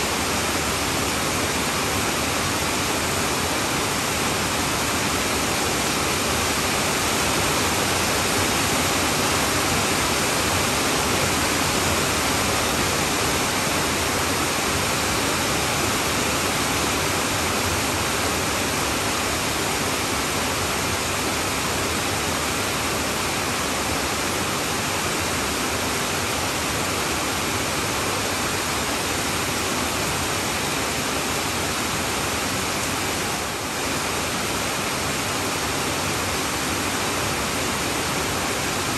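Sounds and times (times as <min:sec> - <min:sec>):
heavy rain on a tin roof: 0:00.0 - 0:38.9.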